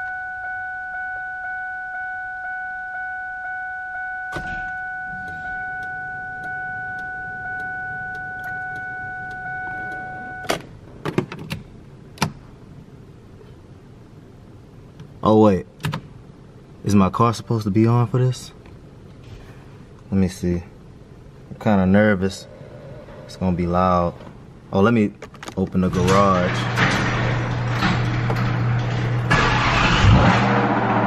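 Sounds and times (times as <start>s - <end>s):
car warning chime dinging: 0.0s - 10.6s.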